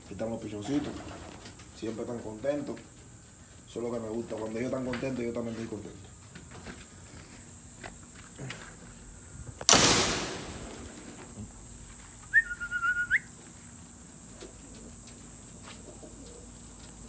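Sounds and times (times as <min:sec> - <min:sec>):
steady high hiss: 0:07.4 - 0:17.0
whistled note: 0:12.3 - 0:13.3.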